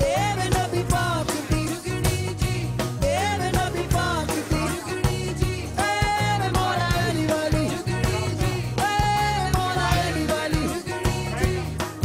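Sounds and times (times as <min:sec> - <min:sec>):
bass: 0:00.0 - 0:12.0
steady drum beat: 0:00.0 - 0:12.0.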